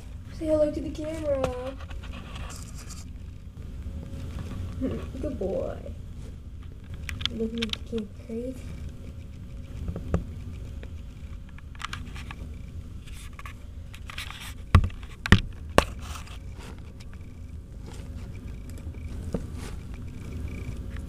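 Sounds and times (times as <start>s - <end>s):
rustling in paper bedding: 17.7s - 20.1s.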